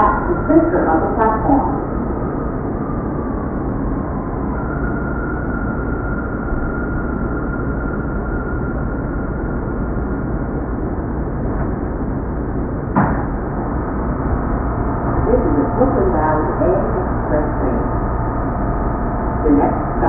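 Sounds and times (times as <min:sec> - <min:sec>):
subway train rumbling: 0:00.0 - 0:20.0
wavering pitched tones: 0:13.5 - 0:20.0.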